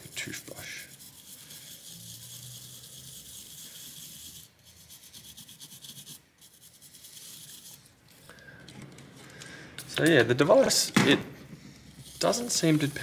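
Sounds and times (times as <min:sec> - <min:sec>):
toothbrush scrubbing: 0:00.0 - 0:08.3, 0:11.7 - 0:13.0.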